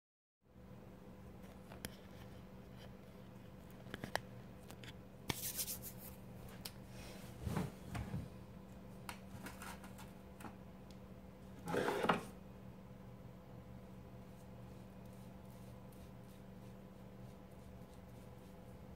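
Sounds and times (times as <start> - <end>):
steady low hum: 0.5 - 18.9
rustling and sliding: 7.0 - 8.4.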